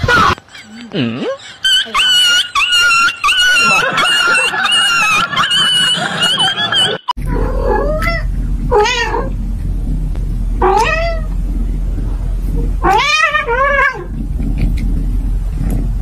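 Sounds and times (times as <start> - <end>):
steady low hum: 3.6 - 16.0
cat meowing: 7.3 - 9.3, 10.6 - 11.3, 12.8 - 14.2.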